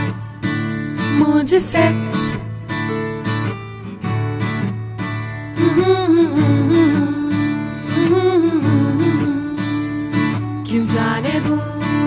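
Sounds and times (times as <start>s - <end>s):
person singing: 0.0s - 2.7s, 5.6s - 12.0s
acoustic guitar strumming: 0.0s - 12.0s.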